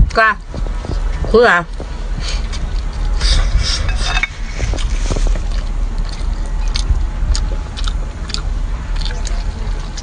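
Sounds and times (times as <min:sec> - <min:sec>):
steady low rumble: 0:00.0 - 0:10.0
wet chewing and slurping: 0:00.6 - 0:10.0.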